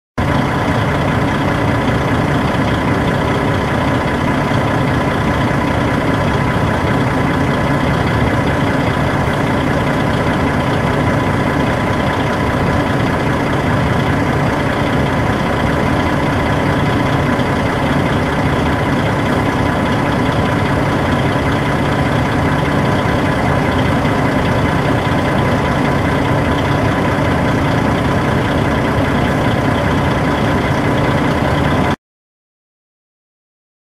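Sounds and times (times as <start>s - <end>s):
bus engine idling: 0.2s - 32.0s.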